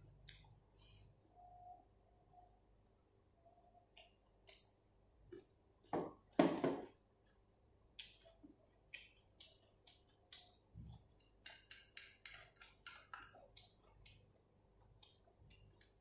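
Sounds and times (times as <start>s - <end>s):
person chewing: 7.2s - 16.0s
chopsticks clicking: 8.0s - 14.3s, 14.9s - 16.0s.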